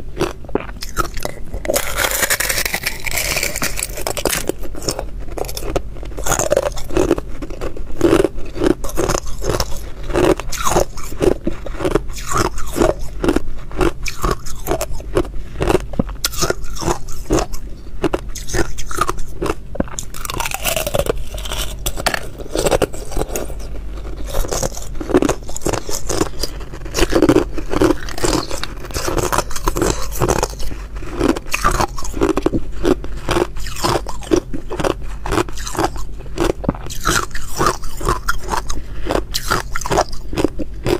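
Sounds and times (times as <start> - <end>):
chewing ice crunches: 0.2 - 40.9.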